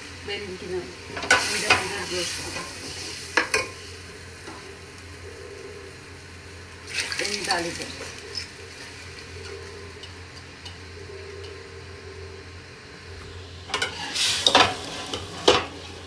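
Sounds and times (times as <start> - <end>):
liquid sizzling in a pot: 0.0 - 5.2, 6.6 - 10.9, 13.2 - 16.0.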